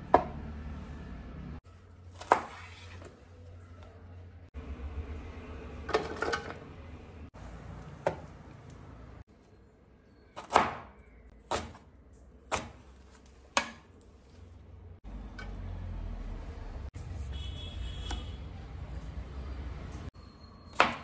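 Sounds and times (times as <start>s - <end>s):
knife chopping on cutting board: 12.5s - 12.9s.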